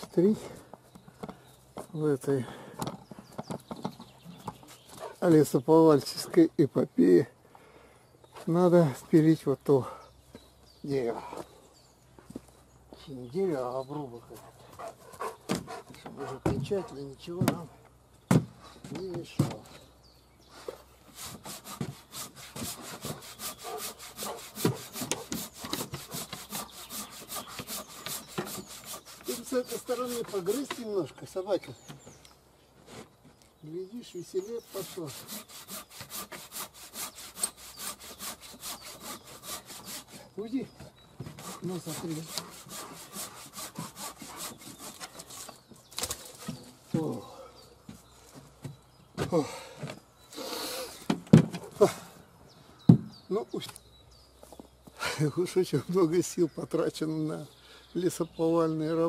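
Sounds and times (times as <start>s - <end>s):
hand saw cutting wood: 21.1s - 31.1s, 34.4s - 40.4s, 41.2s - 46.7s.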